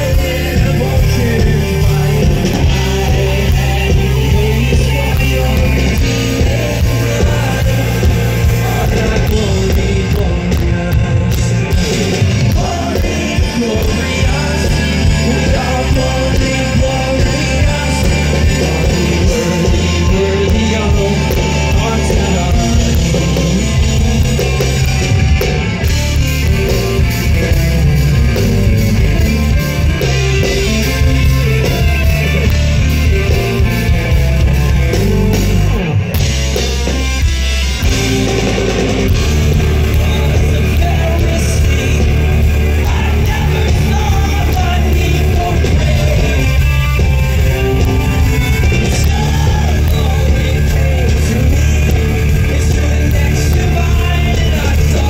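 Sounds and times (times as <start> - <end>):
person singing: 0.0 - 25.6, 37.8 - 55.0
electric guitars: 0.0 - 55.0
live rock band playing: 0.0 - 55.0.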